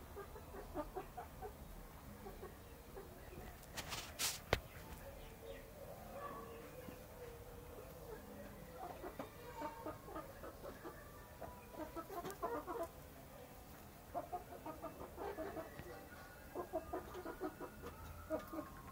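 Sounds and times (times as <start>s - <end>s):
chickens clucking: 0.0s - 18.9s.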